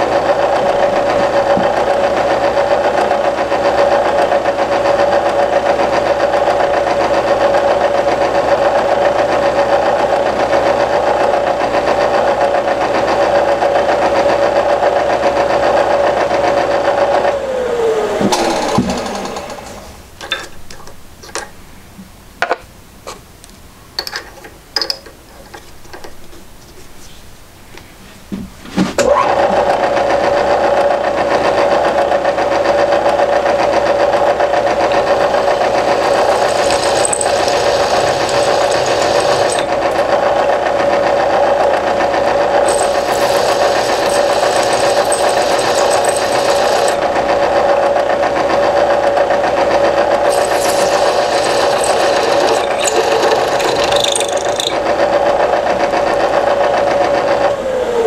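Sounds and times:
small electric motor humming: 34.8 - 40.1, 42.6 - 47.0, 50.2 - 54.8.

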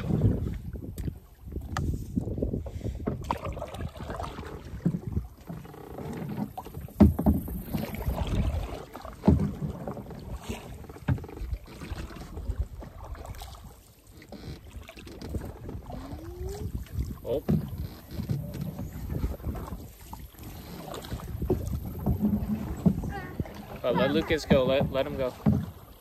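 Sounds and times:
paddle splashing water: 0.0 - 26.0
paddle thuds: 2.6 - 26.0.

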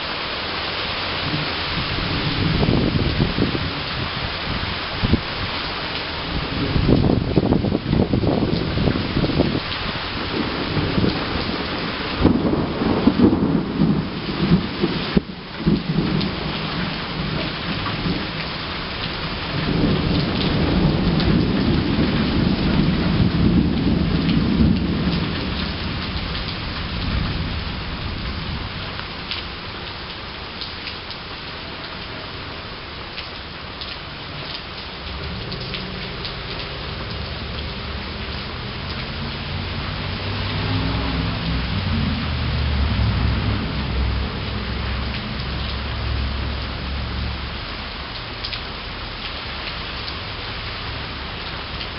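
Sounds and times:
rain falling: 0.0 - 51.9
thunder rumbling: 1.1 - 5.5, 6.2 - 29.7, 34.1 - 47.5.

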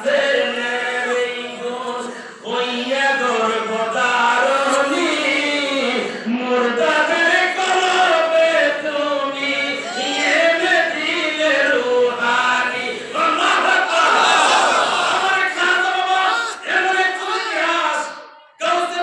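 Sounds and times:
man chanting into microphone: 0.0 - 9.4.

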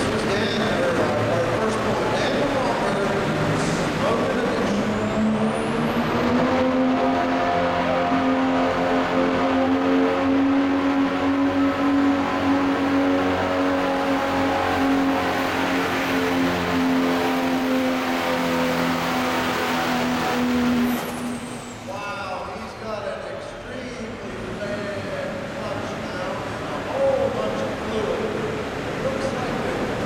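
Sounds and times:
diesel engine at full throttle: 0.0 - 30.0.

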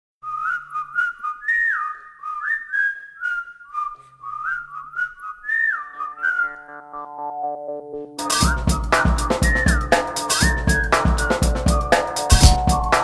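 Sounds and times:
whistled tune: 0.2 - 7.6, 8.2 - 13.0
sparse clicking beat: 12.2 - 13.0.

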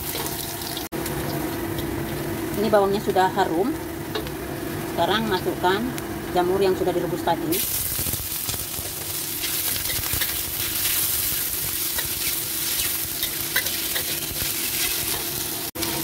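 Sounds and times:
mushrooms sizzling in oil: 0.0 - 16.0
metal spatula scraping wok: 8.9 - 16.0.

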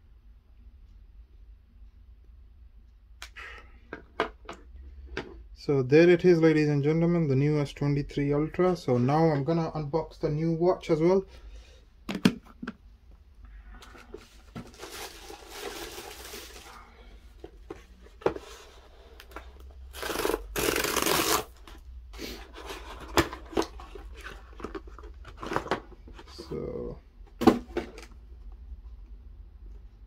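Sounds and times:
boxes knocking and clicking: 12.1 - 12.8, 22.5 - 26.6, 27.3 - 28.1
cardboard tearing: 19.9 - 21.7.

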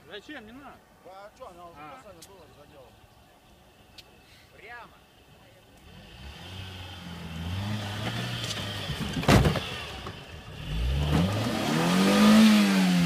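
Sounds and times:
car engine revving under load: 5.8 - 13.0.

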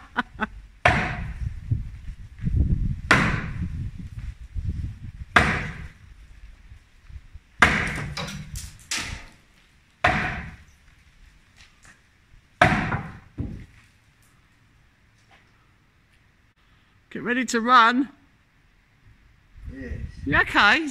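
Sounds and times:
sledgehammer strikes: 0.8 - 1.4, 3.1 - 3.6, 5.3 - 6.0, 7.6 - 9.4, 10.0 - 10.6, 12.6 - 13.7.

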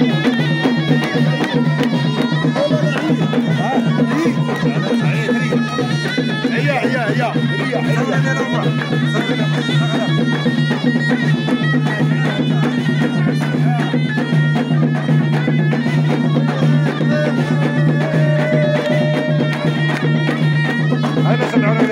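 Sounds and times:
fast drum beats: 0.0 - 21.9
reed pipe buzzing melody: 0.0 - 21.9.

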